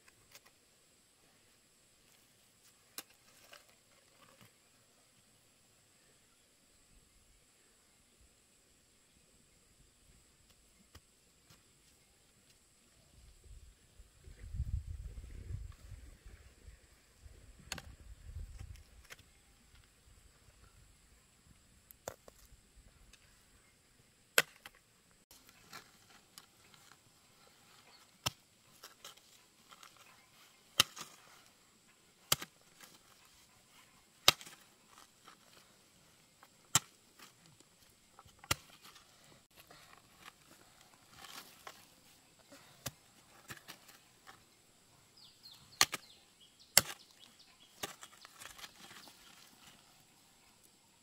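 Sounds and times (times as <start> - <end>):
hoe striking stony soil: 24.3 - 27.1, 27.7 - 44.5, 45.2 - 49.8.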